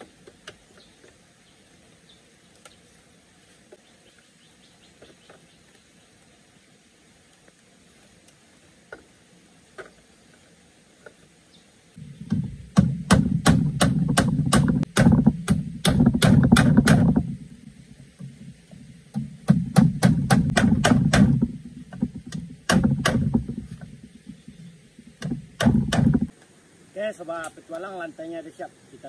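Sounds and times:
machete striking bamboo: 12.0 - 17.5, 19.2 - 24.6, 25.2 - 26.3.

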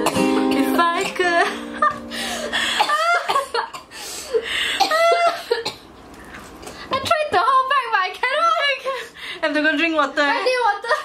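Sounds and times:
strummed acoustic guitar: 0.0 - 2.8.

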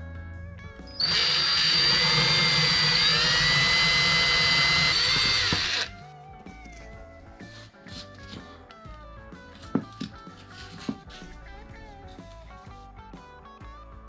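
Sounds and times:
cordless drill whining: 0.9 - 6.0.

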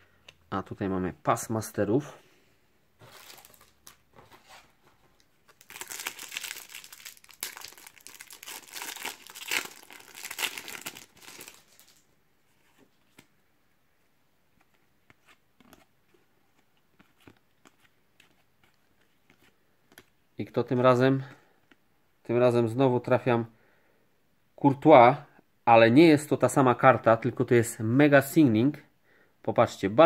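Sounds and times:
foil pack tearing and crinkling: 5.6 - 12.0.

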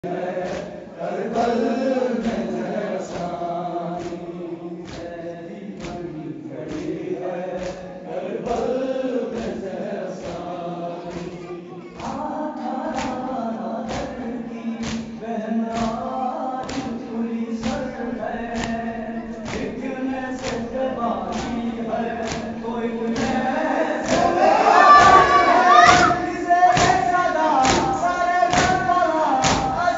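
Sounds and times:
man singing a lament: 0.0 - 29.9
voices joining in: 17.9 - 26.2.

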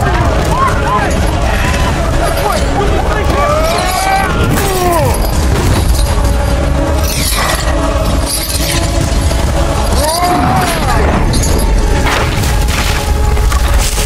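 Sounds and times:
men grunting: 0.0 - 5.4, 9.8 - 11.2
dramatic film music: 0.0 - 14.0
heavy blows and impacts: 0.0 - 14.0.

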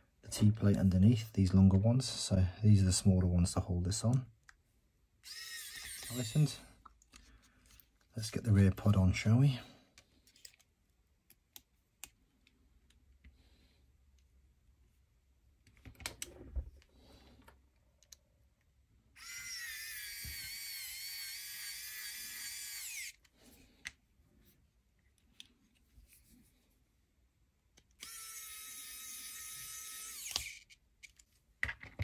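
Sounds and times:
electric screwdriver whining: 5.2 - 6.6, 19.2 - 23.2, 28.0 - 30.7
clicks of small parts handled: 10.0 - 13.3, 30.2 - 32.0.

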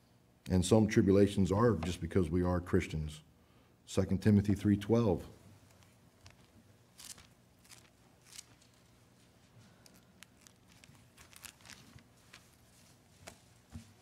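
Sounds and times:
thin pages rustling: 5.6 - 14.0.

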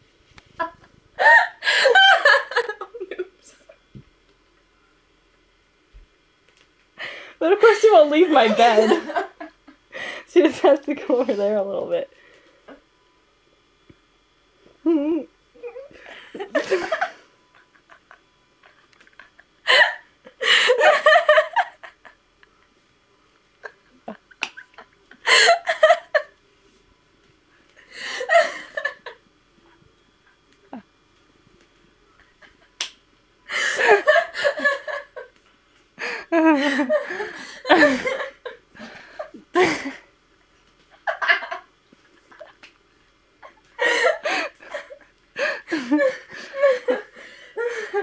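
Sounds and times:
people laughing: 1.2 - 3.3, 8.3 - 9.6, 16.1 - 19.9, 33.7 - 35.3, 36.3 - 38.6.

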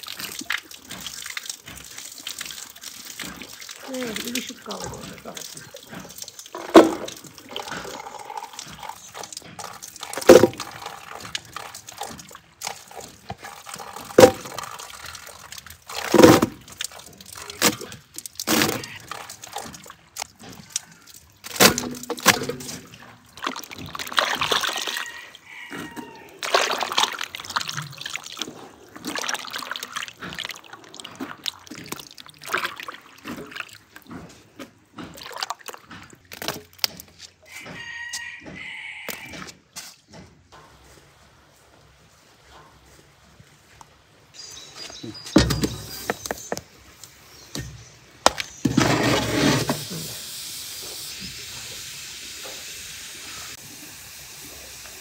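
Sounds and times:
water sloshing and trickling: 0.0 - 50.2
berries splashing into water: 8.6 - 25.2, 26.4 - 34.1.

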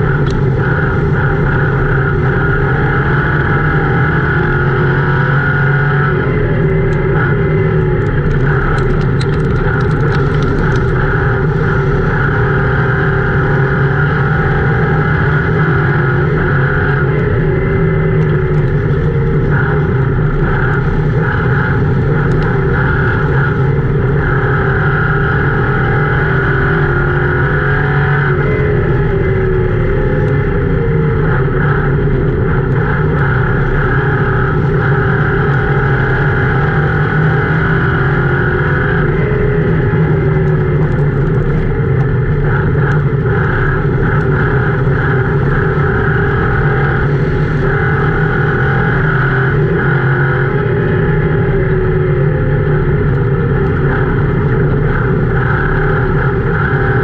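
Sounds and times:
race car engine running hard: 0.0 - 57.0.

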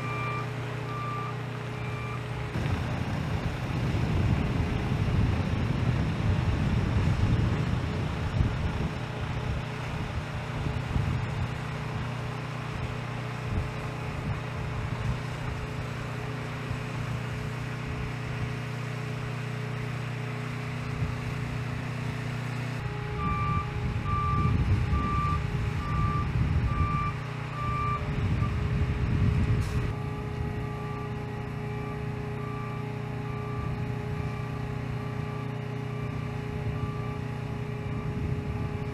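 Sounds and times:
backup alarm beeping: 0.0 - 2.3, 23.1 - 28.6, 30.0 - 38.9
diesel truck engine running: 0.0 - 38.9.

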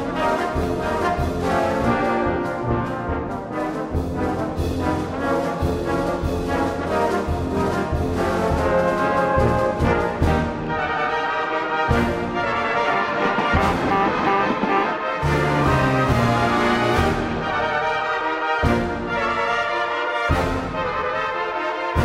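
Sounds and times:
brass music: 0.0 - 22.0
pulsing beat: 12.9 - 16.1.

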